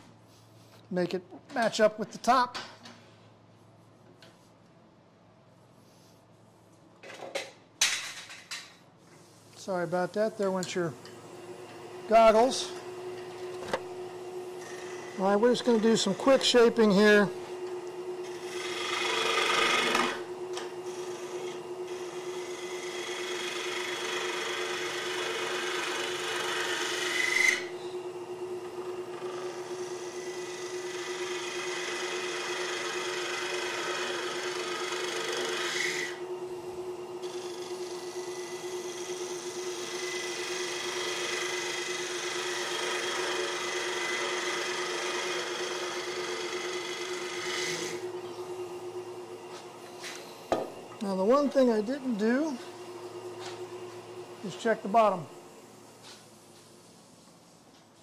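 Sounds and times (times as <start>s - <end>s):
lathe humming: 9.3s - 57.5s
turning tool cutting wood: 9.6s - 55.8s.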